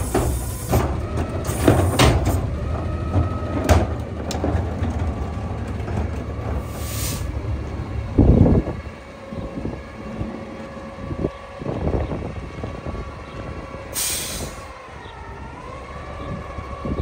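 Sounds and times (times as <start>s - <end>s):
air hiss blast: 0.0s - 0.8s, 6.7s - 7.3s, 14.0s - 14.7s
garbage truck idling: 0.0s - 17.0s.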